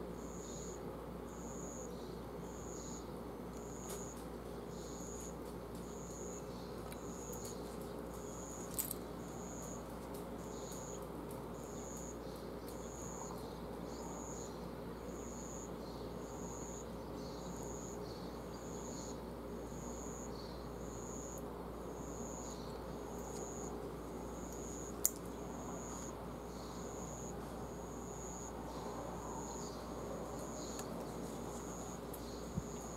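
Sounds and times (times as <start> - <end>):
background hiss: 0.0 - 32.9.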